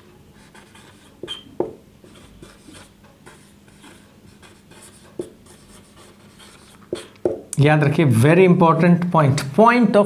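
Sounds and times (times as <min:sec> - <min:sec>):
marker squeaking on whiteboard: 0:00.0 - 0:07.5.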